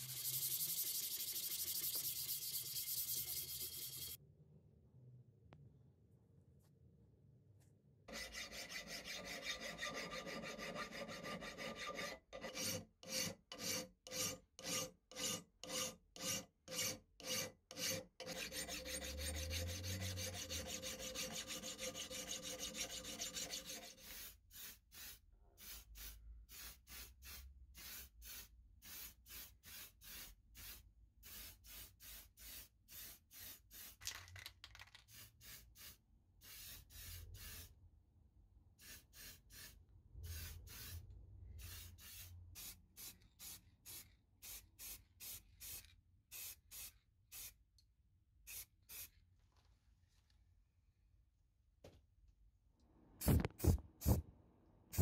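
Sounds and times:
hand file scraping steel blade: 0.0 - 4.2, 8.1 - 24.1
spray can hiss: 24.0 - 37.6, 53.2 - 54.2.

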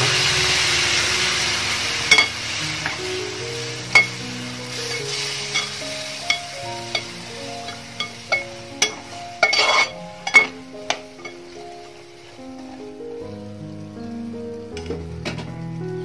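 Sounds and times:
pickle sizzling: 0.0 - 16.0
soft background music: 0.0 - 16.0
metal spatula scraping pot: 7.7 - 10.6.

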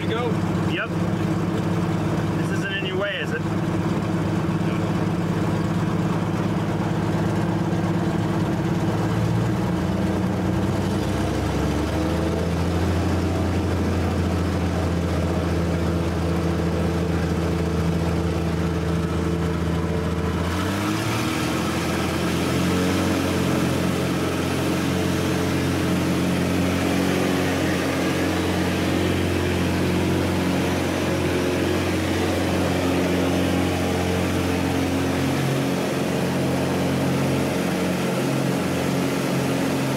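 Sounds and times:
propeller plane engine running: 0.0 - 39.9.

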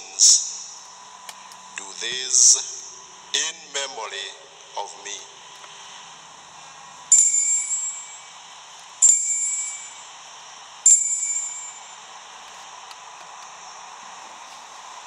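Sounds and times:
altar bell ringing: 7.1 - 8.3, 9.0 - 10.0, 10.9 - 11.9.

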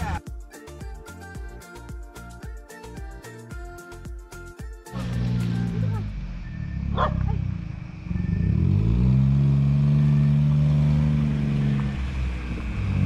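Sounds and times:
van engine revving: 5.0 - 13.0.

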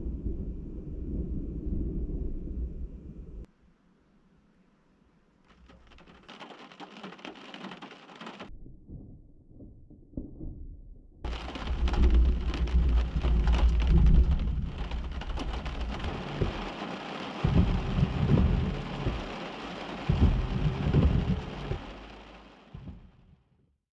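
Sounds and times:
rain: 0.0 - 3.5, 5.5 - 8.5, 11.3 - 23.2
thunder rumbling: 0.0 - 3.5, 8.5 - 23.2.

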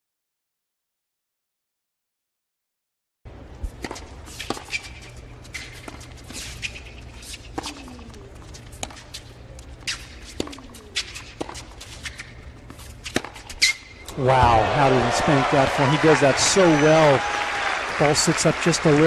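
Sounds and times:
shoe squeaks: 3.9 - 14.0
racket striking tennis ball: 8.7 - 9.0, 9.8 - 14.8
crowd hum: 14.1 - 19.0.

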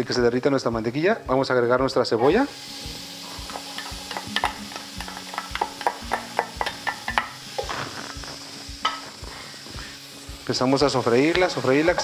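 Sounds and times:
onion sizzling in butter: 0.0 - 12.0
sharp crackles and pops: 3.4 - 12.0.

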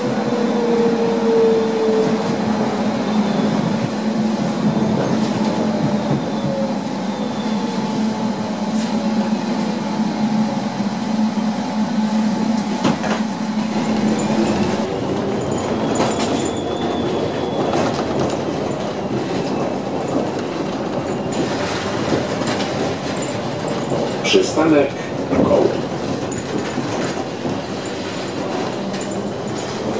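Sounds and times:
tram motor hum and whine: 0.0 - 29.9
wheels clacking on track: 12.6 - 29.9.

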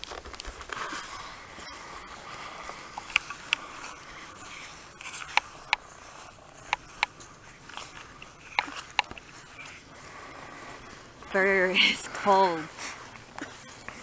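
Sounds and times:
sharp crackles: 0.0 - 14.0.

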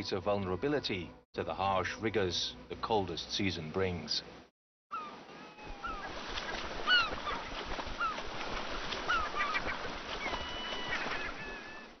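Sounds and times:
gulls calling: 4.9 - 12.0
splashing river water: 5.5 - 12.0.

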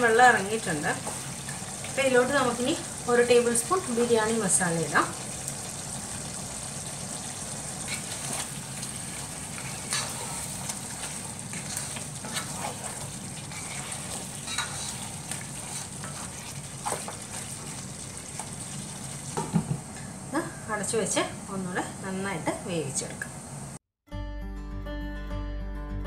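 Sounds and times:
curry sizzling in a pot: 0.0 - 23.8
spatula scraping and tapping pot: 7.8 - 18.7.

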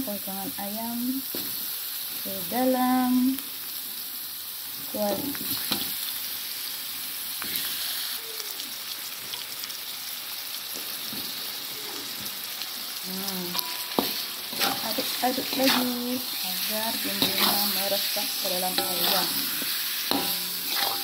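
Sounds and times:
paste sizzling in a wok: 0.0 - 21.0
metal spatula scraping wok: 13.5 - 21.0.

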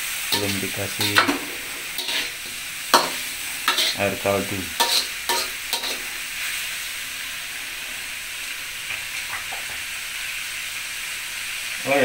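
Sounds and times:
stir-fry sizzling in a wok: 0.0 - 12.0
spatula scraping a wok: 0.3 - 6.6.

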